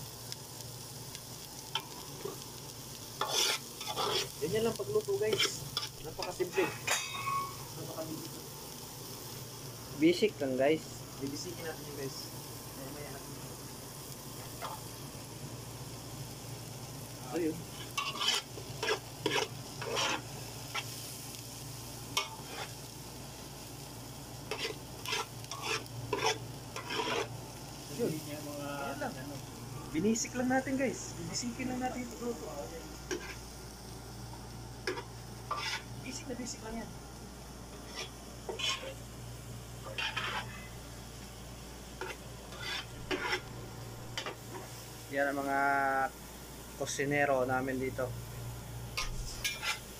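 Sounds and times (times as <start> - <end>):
vegetables sizzling in oil: 0.0 - 49.9
spoon scraping in a metal pot: 3.2 - 4.4, 18.0 - 20.2, 24.5 - 27.3, 34.9 - 35.9, 37.8 - 39.0, 39.8 - 40.5, 42.0 - 43.5, 49.0 - 49.9.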